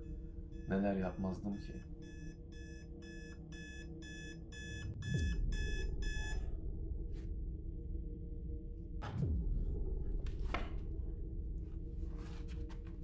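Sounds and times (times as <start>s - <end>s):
alarm clock beeping: 0.0s - 6.5s
low steady drone: 0.0s - 12.4s.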